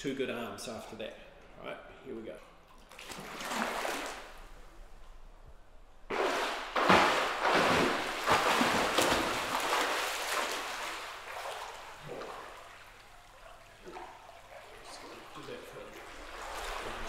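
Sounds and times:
swimmer splashing in a pool: 0:02.9 - 0:04.6, 0:06.1 - 0:17.0.

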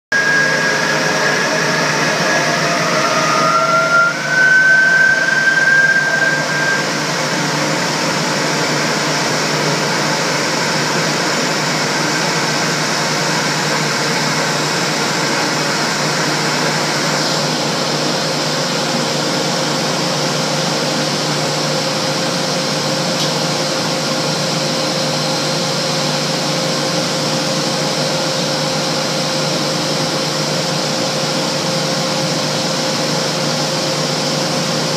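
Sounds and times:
high whistle: 0:00.1 - 0:08.7
blower running: 0:00.1 - 0:34.9.

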